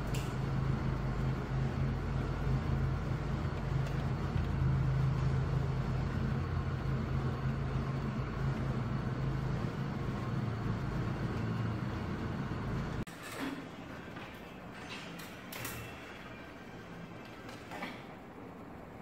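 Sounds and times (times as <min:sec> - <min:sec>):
noisy rumble: 0:00.0 - 0:13.1
steady low hum: 0:00.0 - 0:19.0.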